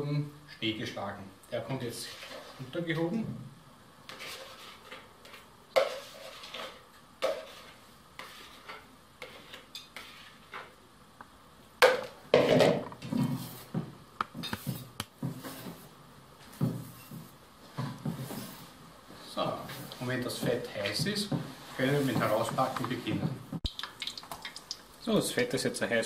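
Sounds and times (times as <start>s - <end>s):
whisk stirring in metal bowl: 2.0s - 2.6s, 4.1s - 10.7s
spatula scraping and tapping bowl: 4.1s - 10.8s, 12.0s - 18.7s.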